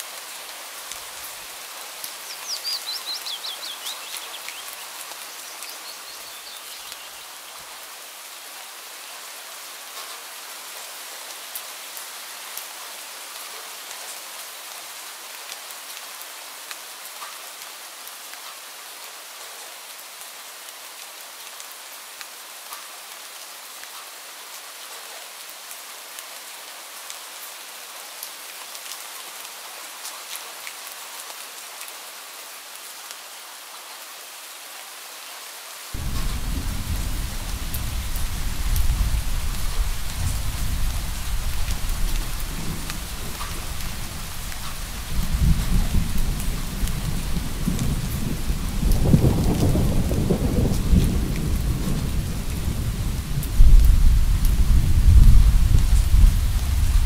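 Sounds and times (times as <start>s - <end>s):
steady rain falling: 0.0s - 57.0s
low thunder rumbling: 36.0s - 57.0s.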